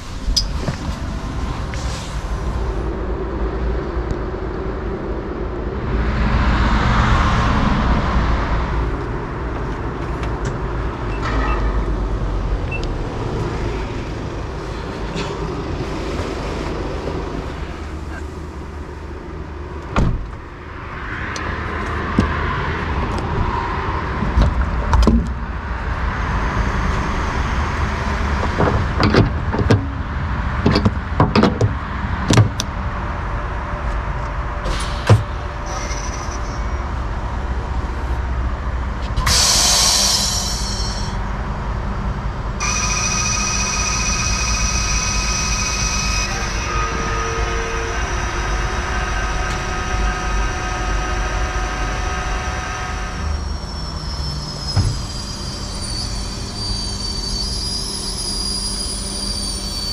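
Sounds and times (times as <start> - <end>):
nozzle clicks and knocks: 28.6 - 30.0, 30.6 - 32.7
short loud hiss: 39.2 - 41.2
high whine and gas hiss: 39.2 - 41.4.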